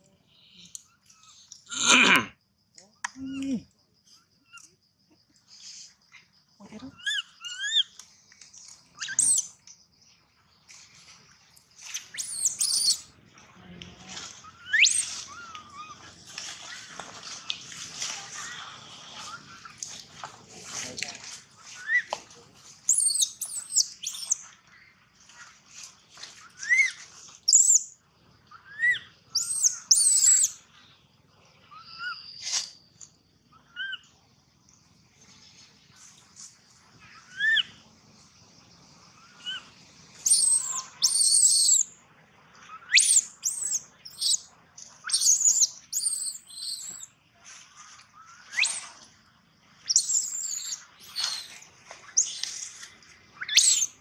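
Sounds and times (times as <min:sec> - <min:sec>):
baby monkey crying squeals: 0:07.0 - 0:07.9, 0:12.2 - 0:13.1, 0:14.5 - 0:16.0, 0:22.9 - 0:24.4, 0:28.7 - 0:30.6, 0:40.2 - 0:41.8, 0:42.8 - 0:44.4, 0:45.1 - 0:47.1, 0:49.9 - 0:51.5, 0:53.4 - 0:53.9.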